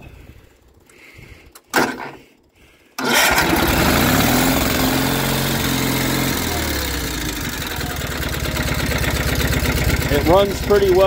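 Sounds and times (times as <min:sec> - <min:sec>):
lawn tractor engine running: 0:03.0 - 0:11.0.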